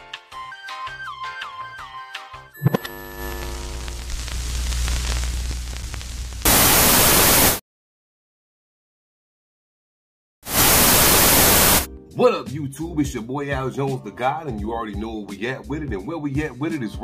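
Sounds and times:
white-noise static: 2.7s - 7.6s, 10.5s - 11.9s.

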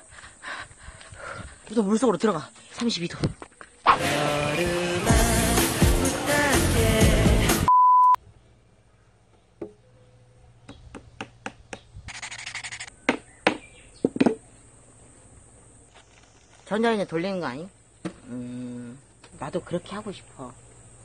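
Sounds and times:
background music: 3.9s - 7.7s
short high beep: 7.7s - 8.2s.

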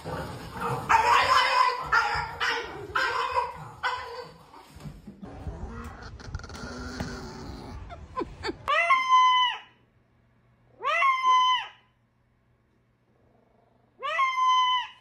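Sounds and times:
small dog barking: 0.9s - 4.3s.

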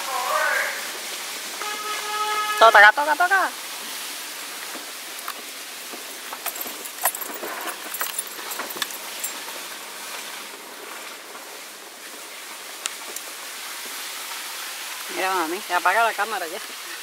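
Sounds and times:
road and wind noise hiss: 0.0s - 17.0s
small clicks and jingly rattles: 6.3s - 9.6s.

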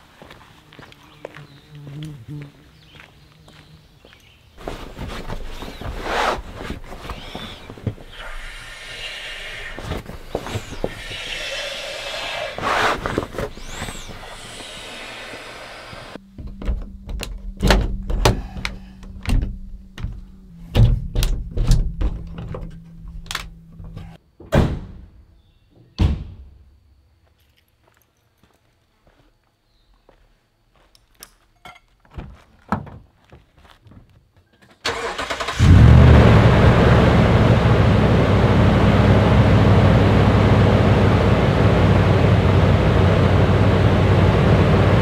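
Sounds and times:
air rushing: 5.3s - 16.2s.

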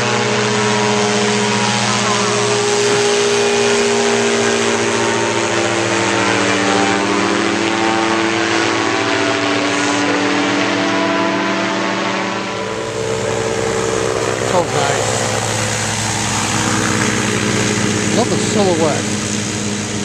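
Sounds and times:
engine and propeller drone: 0.0s - 20.0s.

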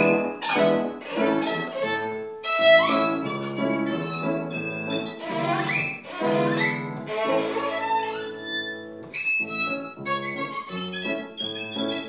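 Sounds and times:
piano chords: 0.0s - 12.0s
violin playing: 0.0s - 12.0s.

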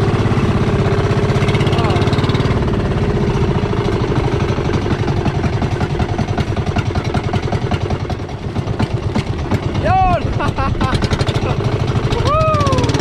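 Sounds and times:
boat engine chugging: 0.0s - 13.0s.

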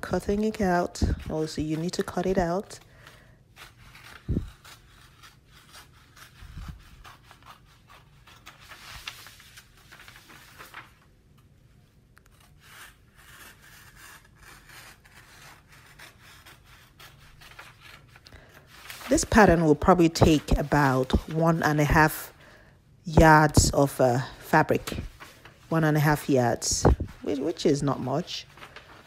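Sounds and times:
paper rustling: 0.0s - 22.4s, 23.4s - 29.0s
scissors cutting paper: 3.5s - 8.8s, 12.2s - 22.2s.

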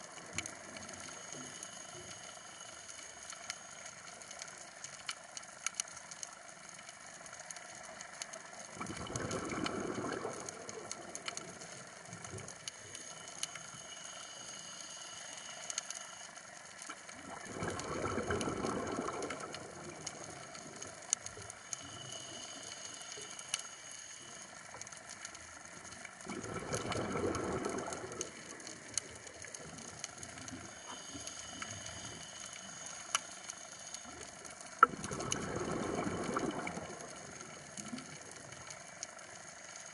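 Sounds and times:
coral reef crackling and ticking: 0.0s - 39.9s
exhaled bubbles bursting: 8.8s - 11.2s, 17.2s - 20.8s, 26.2s - 28.5s, 34.8s - 38.2s.

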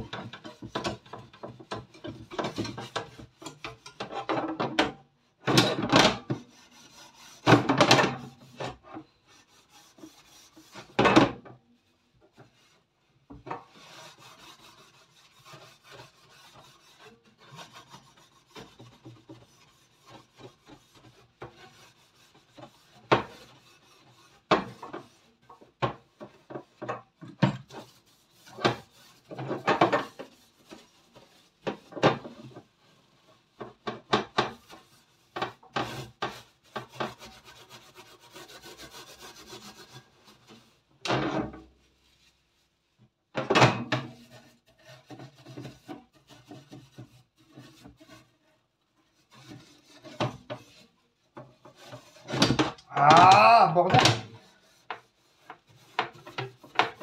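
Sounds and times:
sponge scrubbing wire rack: 12.3s - 42.7s, 43.7s - 48.5s, 49.1s - 57.0s.

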